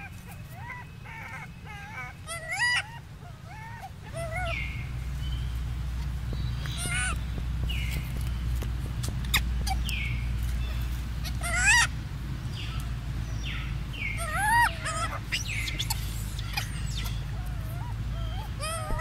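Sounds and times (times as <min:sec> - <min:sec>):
animal squealing calls: 0:00.0 - 0:05.0, 0:06.6 - 0:07.4, 0:09.2 - 0:12.0, 0:14.1 - 0:19.0
steady low hum: 0:00.0 - 0:19.0.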